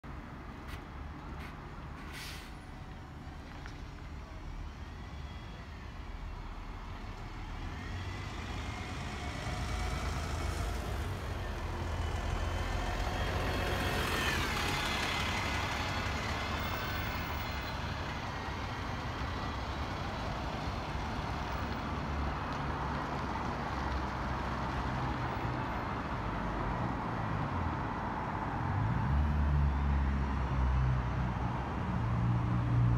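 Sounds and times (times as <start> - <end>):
bus engine rumble: 0.1 - 28.4
hiss of air: 2.0 - 2.6.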